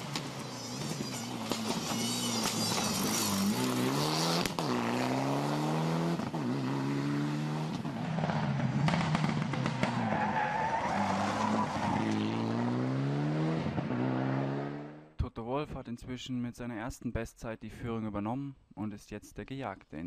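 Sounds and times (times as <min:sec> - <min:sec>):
tyres skidding on loose surface: 0:00.0 - 0:04.8
rally car engine at full throttle: 0:00.0 - 0:15.1.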